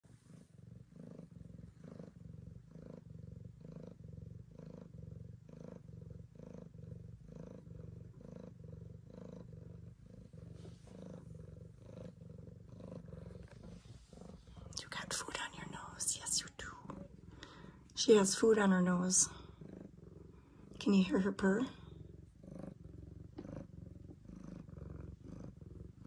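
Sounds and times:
cat purring: 0:00.0 - 0:26.0.

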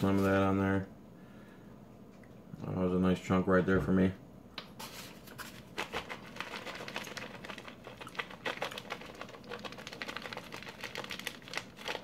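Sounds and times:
plastic bag crinkling: 0:04.9 - 0:12.0.

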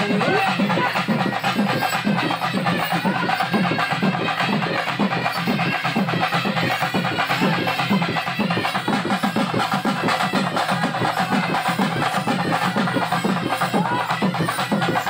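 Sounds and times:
drums beating fast rhythm: 0:00.0 - 0:15.0.

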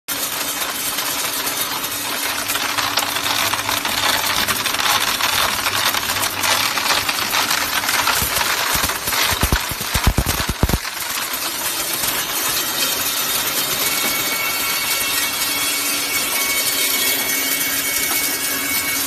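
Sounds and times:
mineral pieces clicking and rattling: 0:02.2 - 0:12.1.

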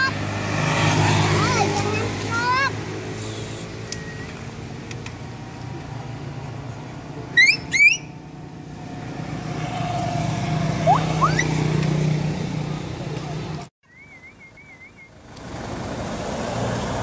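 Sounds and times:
road traffic rumble: 0:00.0 - 0:17.0
high rising chirps: 0:10.8 - 0:11.6.

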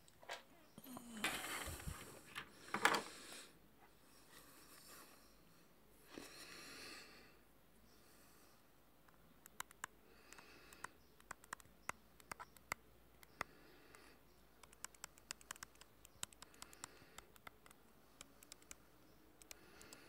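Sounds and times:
soft breaths: 0:00.5 - 0:08.9, 0:09.8 - 0:20.0
finger tapping phone touchscreen: 0:09.5 - 0:14.0, 0:14.6 - 0:18.8.

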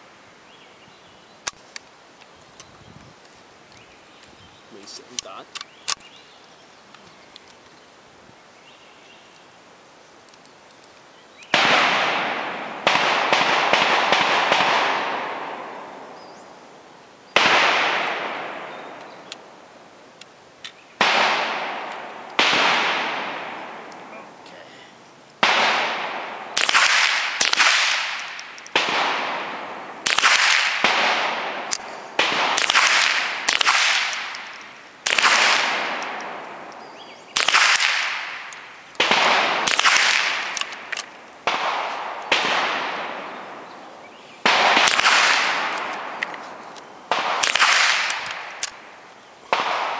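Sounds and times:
rifle shots echoing: 0:11.5 - 0:16.2, 0:17.3 - 0:19.6, 0:21.0 - 0:24.4, 0:25.4 - 0:49.9.

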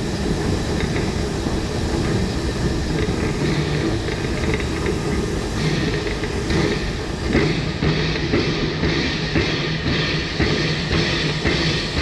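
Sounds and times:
steam locomotive working: 0:00.0 - 0:12.0
train wheels on rails: 0:00.0 - 0:12.0.

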